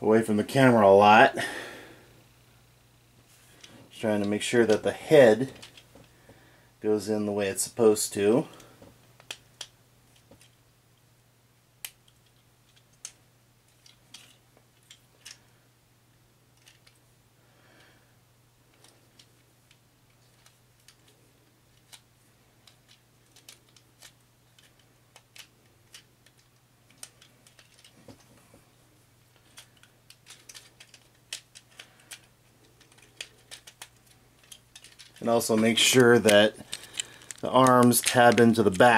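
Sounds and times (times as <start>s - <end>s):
plastic toy parts clicking: 5.5s - 5.9s, 9.2s - 10.6s, 11.8s - 15.4s, 16.6s - 17.0s, 18.7s - 21.1s, 21.7s - 28.3s, 29.4s - 38.9s.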